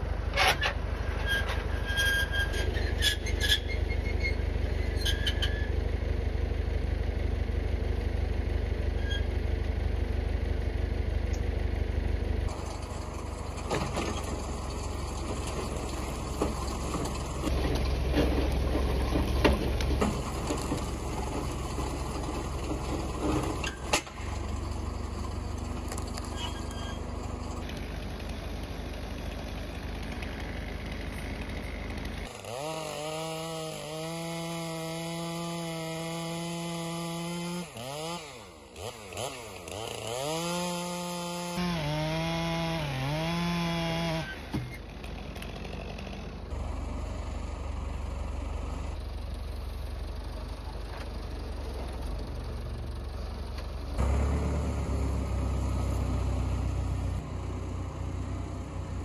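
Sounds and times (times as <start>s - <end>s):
tractor engine rumble: 0.0s - 59.0s
chainsaw cutting log: 18.6s - 46.6s.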